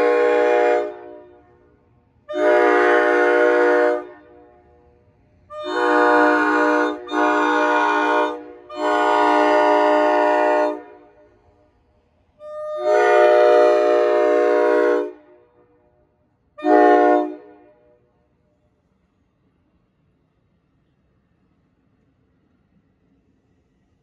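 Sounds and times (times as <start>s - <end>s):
train horn blasts: 0.0s - 4.9s, 5.5s - 11.6s, 12.4s - 18.2s.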